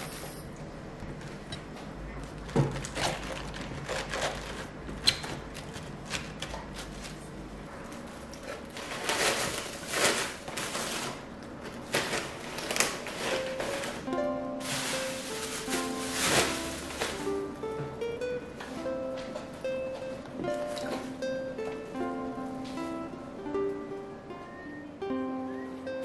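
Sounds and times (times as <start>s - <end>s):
cabbage and packaging rustling: 2.3s - 18.0s, 18.7s - 21.8s.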